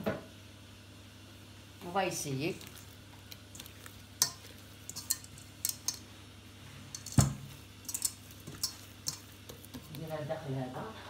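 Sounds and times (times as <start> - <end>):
hand working dough in metal bowl: 1.8 - 11.0.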